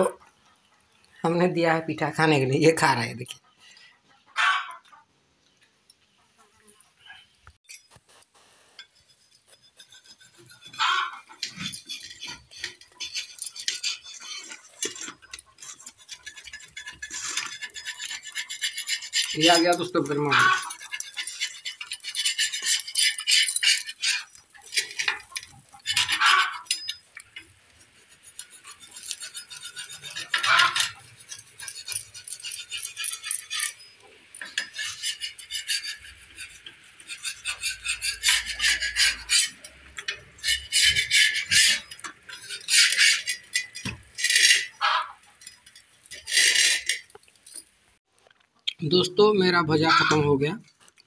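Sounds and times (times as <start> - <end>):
steel plates clinking and scraping: 6.6 - 8.2, 8.8 - 47.8.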